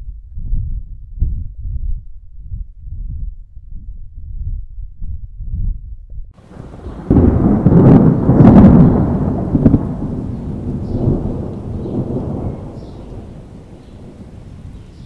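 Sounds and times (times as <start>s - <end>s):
thunderclap: 6.4s - 15.0s.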